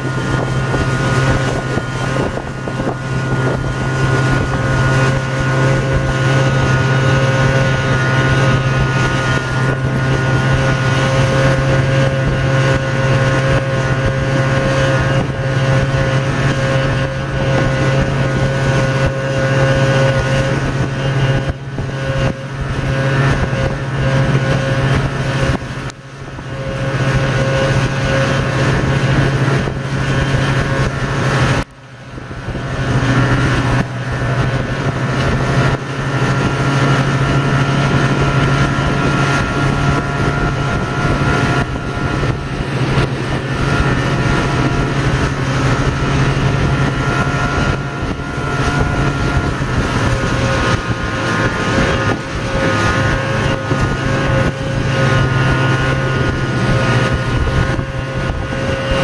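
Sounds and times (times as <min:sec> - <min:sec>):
snowmobile engine running: 0:00.0 - 0:59.0.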